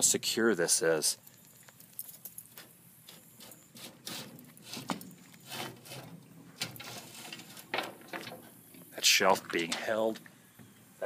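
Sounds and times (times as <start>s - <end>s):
metal shelf knocking and scraping: 4.3s - 8.6s.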